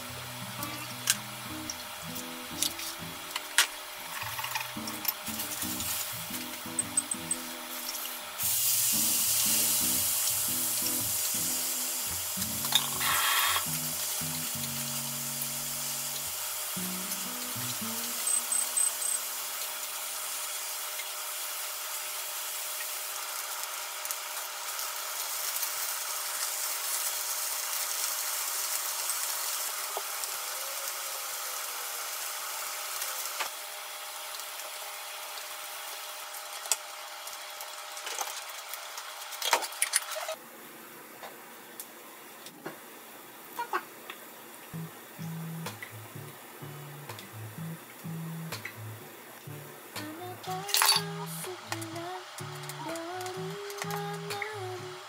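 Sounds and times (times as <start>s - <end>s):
sauce sizzling in a frying pan: 0.1s - 37.8s.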